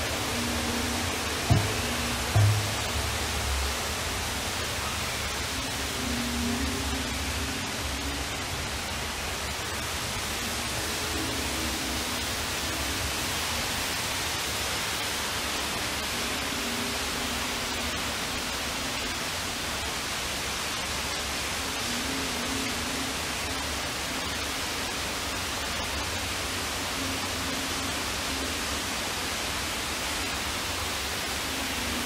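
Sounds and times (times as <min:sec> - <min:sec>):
faint low tones: 0:00.0 - 0:09.0
indoor waterfall rushing: 0:00.0 - 0:32.0.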